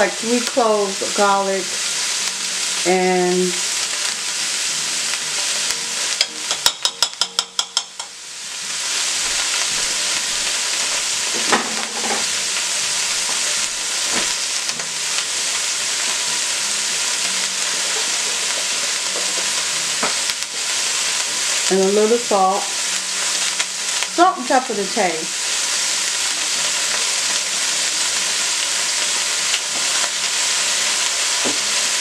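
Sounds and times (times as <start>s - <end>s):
vegetables sizzling in a pot: 0.0s - 32.0s.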